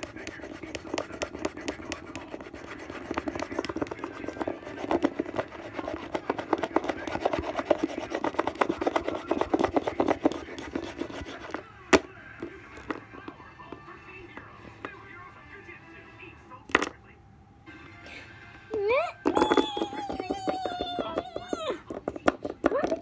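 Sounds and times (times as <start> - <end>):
plastic toys scraping on wood: 0.0 - 11.6
plastic toys knocking on wood: 19.2 - 23.0.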